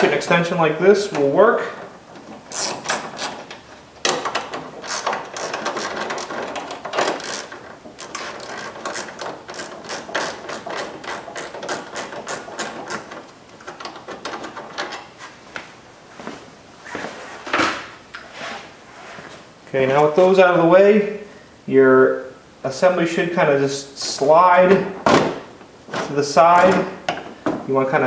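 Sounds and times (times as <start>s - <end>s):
ratchet clicking: 2.5s - 3.4s, 4.1s - 13.1s.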